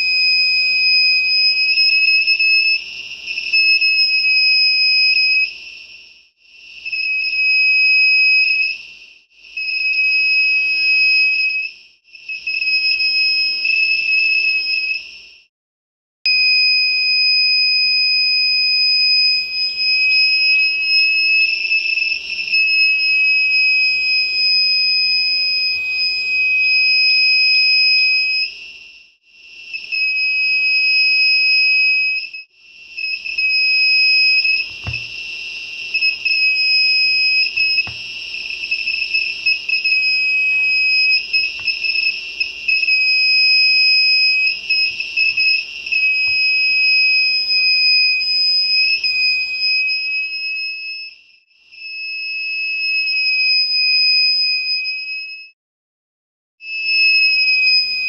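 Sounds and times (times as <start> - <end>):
high-pitched buzzer tone: 29.6 - 51.0
soft knock: 34.7 - 35.1.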